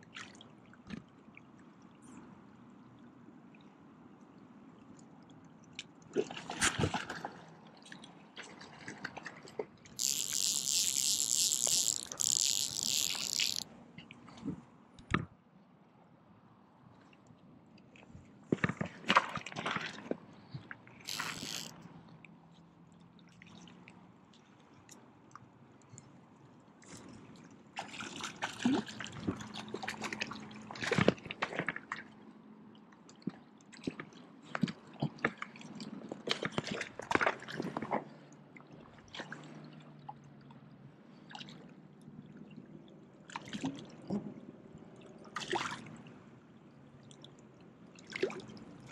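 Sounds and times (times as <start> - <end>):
fish splashing in water: 10.0 - 13.6, 21.1 - 21.8
fishing reel ratcheting: 10.0 - 13.6, 21.1 - 21.8.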